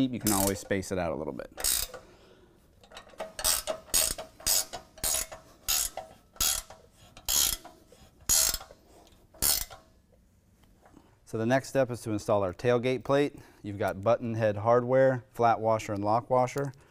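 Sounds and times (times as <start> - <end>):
ratchet wrench clicking: 0.2 - 0.8, 1.5 - 2.1, 2.8 - 9.9.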